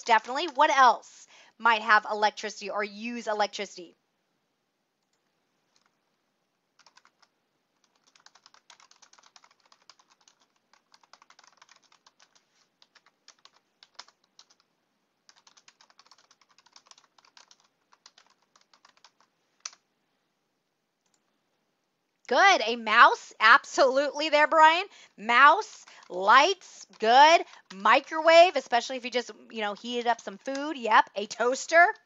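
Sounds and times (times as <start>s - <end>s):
typing on keyboard: 5.0s - 6.0s, 6.8s - 14.7s, 15.3s - 19.8s, 25.8s - 26.2s.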